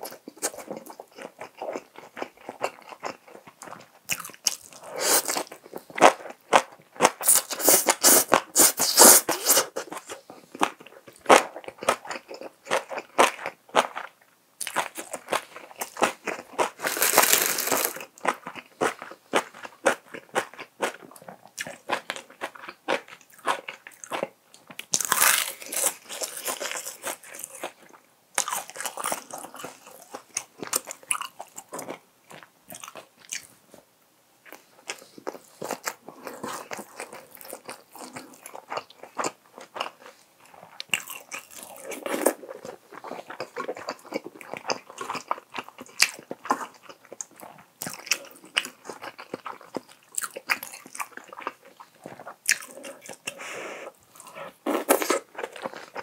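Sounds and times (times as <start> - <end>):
person chewing with wet clicks: 0.0 - 8.4, 9.8 - 33.5, 34.4 - 53.4.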